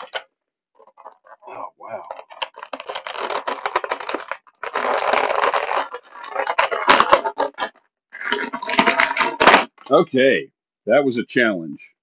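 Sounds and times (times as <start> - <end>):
plastic packaging crinkling: 0.0 - 9.9
plastic snapping: 2.1 - 9.9.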